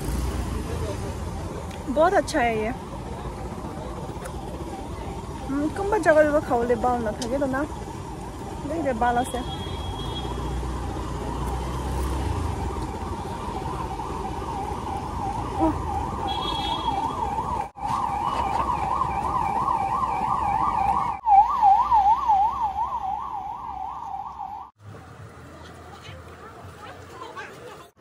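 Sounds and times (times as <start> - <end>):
low street noise: 0.0 - 28.0
siren yelping: 3.4 - 24.7.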